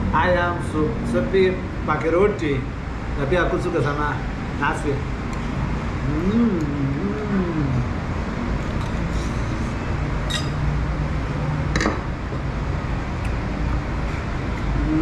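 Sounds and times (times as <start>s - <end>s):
tableware clinking: 10.2s - 10.7s, 11.7s - 12.0s.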